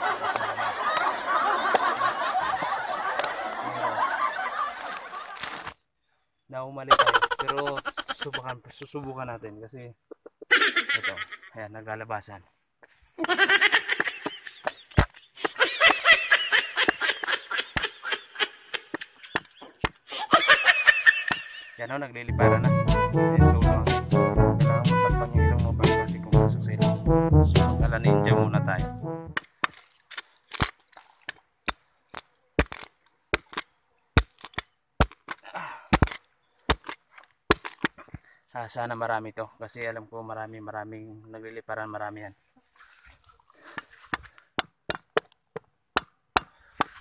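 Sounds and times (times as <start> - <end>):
short rustle: 42.4 - 44.2.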